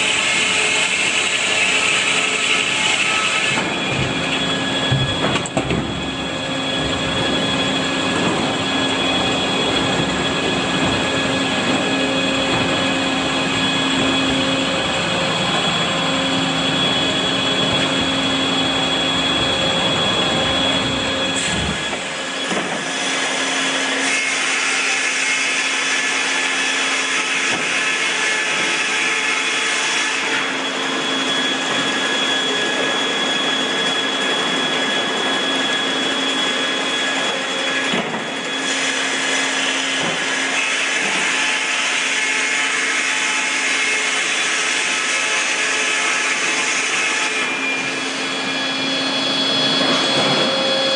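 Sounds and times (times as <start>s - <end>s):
sawmill circular saws spinning: 0.0s - 50.9s
high whine: 3.4s - 22.9s, 30.5s - 38.6s, 47.4s - 50.9s.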